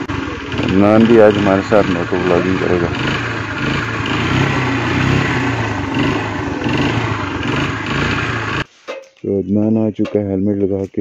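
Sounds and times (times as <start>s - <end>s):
motorcycle engine idling: 0.0s - 8.7s.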